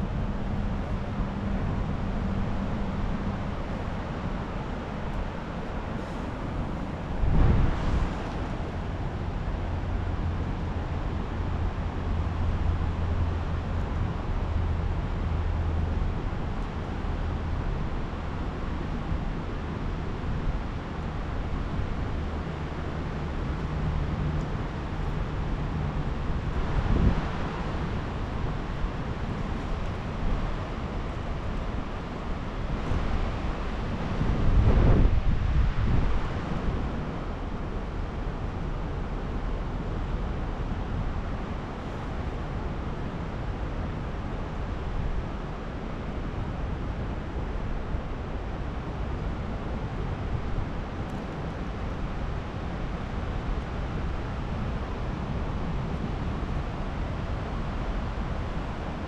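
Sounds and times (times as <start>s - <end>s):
wind on microphone: 5.4s - 11.5s, 25.6s - 37.8s.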